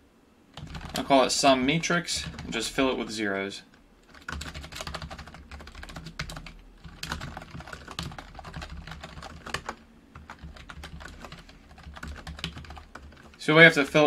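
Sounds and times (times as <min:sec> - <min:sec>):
typing on computer keyboard: 0:00.6 - 0:01.1, 0:02.1 - 0:02.8, 0:04.0 - 0:13.4.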